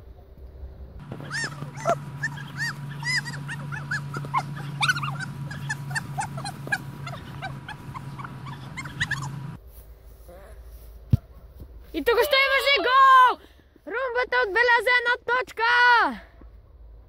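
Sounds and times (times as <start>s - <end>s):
steady low hum: 0.2s - 10.3s
dog yipping and whimpering: 1.0s - 9.6s.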